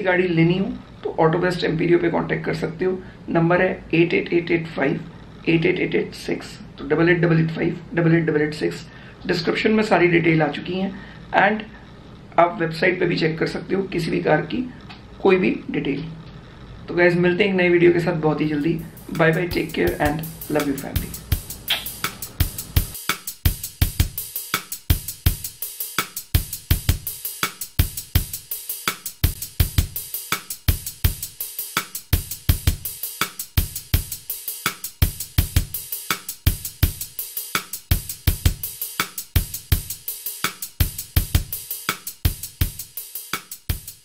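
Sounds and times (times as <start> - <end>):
background music with drum beat: 18.6 - 44.0.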